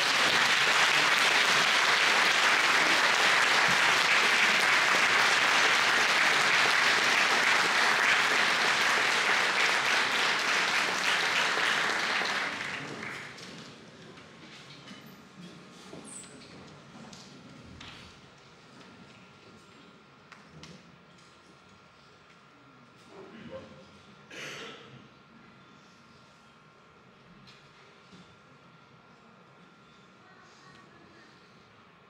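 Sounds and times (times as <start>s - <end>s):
audience applauding: 0.0s - 13.5s.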